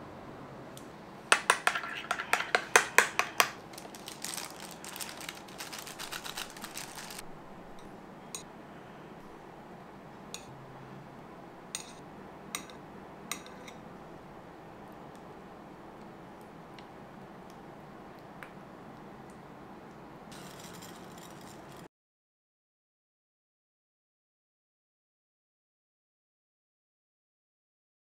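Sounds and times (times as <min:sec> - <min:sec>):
spoon stirring in glass bowl: 0:01.4 - 0:03.7.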